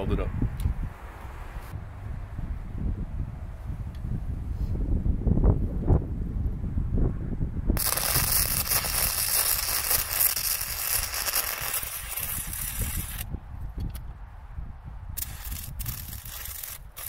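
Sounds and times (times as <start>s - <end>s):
welding arc crackling: 7.8s - 13.3s, 15.2s - 17.0s.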